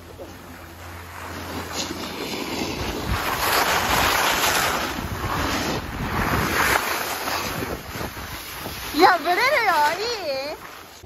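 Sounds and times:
skis scraping on packed snow: 0.0s - 11.0s
wind on microphone: 2.6s - 10.7s.

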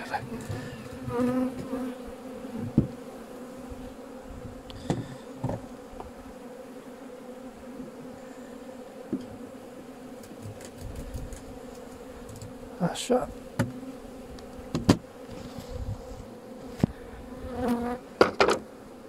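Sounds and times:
honeybees humming: 0.0s - 19.0s
sharp knocks: 13.6s - 13.8s, 14.7s - 15.0s.

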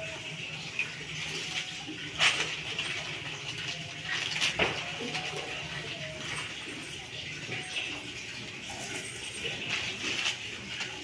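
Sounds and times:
small metal parts clinking: 8.7s - 11.0s.

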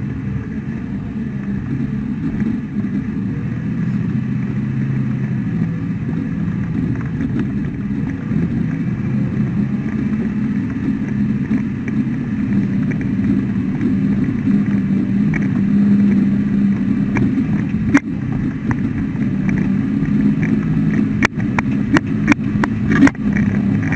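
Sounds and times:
heavy equipment engine droning: 0.0s - 23.9s
sharp clicks and knocks: 5.6s - 23.9s.

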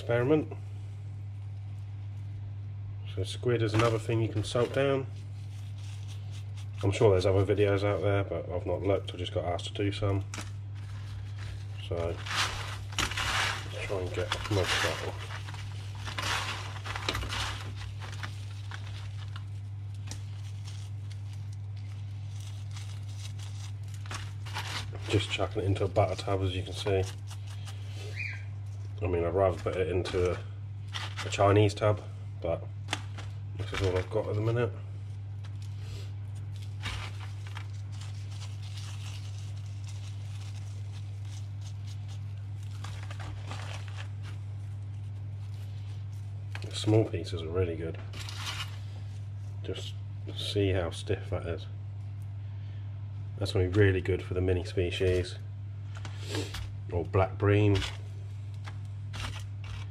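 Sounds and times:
steady low hum: 0.0s - 59.9s
hands rustling in coarse salt: 10.7s - 31.8s, 33.0s - 46.9s
hands rummaging through salt: 10.8s - 27.9s.

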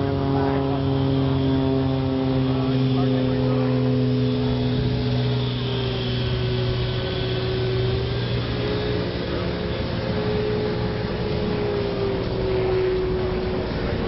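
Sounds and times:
turbine engine whine and hum: 0.0s - 14.0s.

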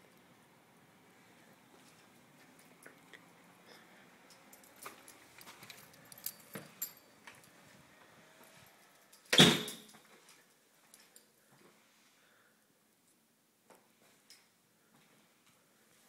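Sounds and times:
keys jingling in door lock: 4.3s - 7.5s.

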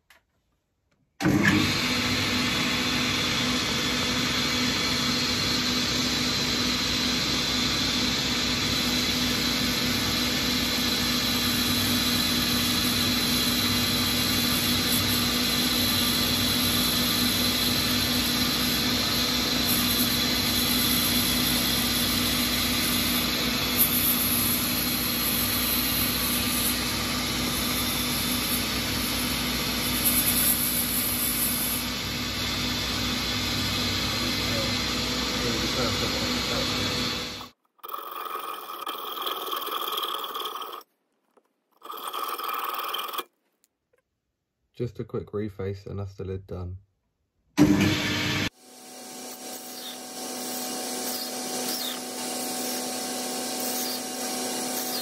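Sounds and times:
metal lathe running with whine: 1.3s - 37.5s, 47.6s - 55.0s
parting tool cutting brass: 49.2s - 55.0s.

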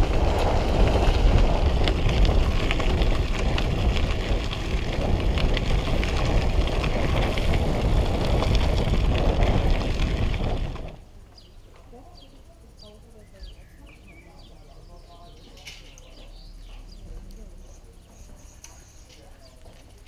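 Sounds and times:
wind rushing over microphone: 0.0s - 11.2s
low rumble of bicycle: 0.0s - 20.0s.

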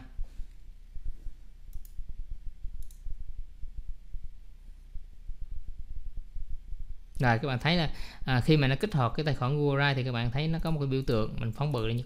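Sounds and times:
sharp clicks: 1.7s - 2.0s, 2.8s - 3.1s
soft low knocks and clicks: 1.7s - 7.2s.

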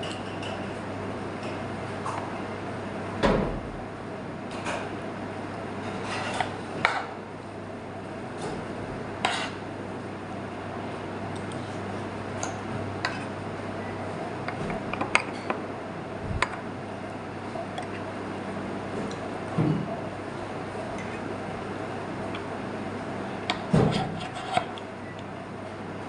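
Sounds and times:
low hum: 16.2s - 16.7s.

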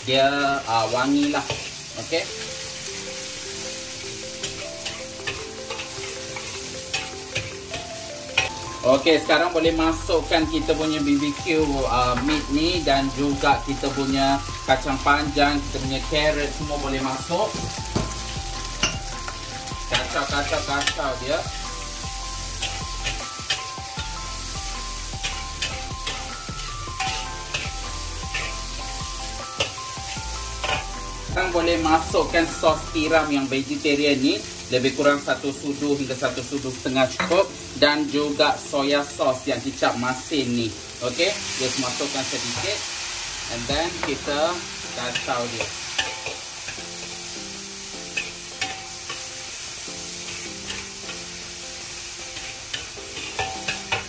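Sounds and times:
vegetables sizzling in oil: 0.0s - 54.0s
metal spatula scraping wok: 0.6s - 2.9s, 3.5s - 11.4s, 14.7s - 31.1s, 41.5s - 47.4s, 48.0s - 51.4s, 52.3s - 54.0s.

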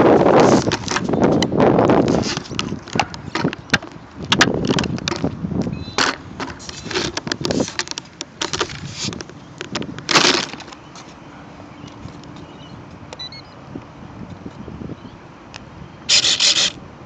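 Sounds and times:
handling clicks and rattles: 0.4s - 5.4s, 6.0s - 11.2s
loud clatter: 10.1s - 10.7s.

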